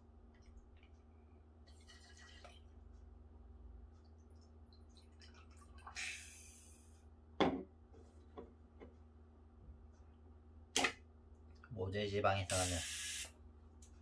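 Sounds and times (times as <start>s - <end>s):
gas hiss: 6.0s - 6.8s, 12.5s - 13.3s.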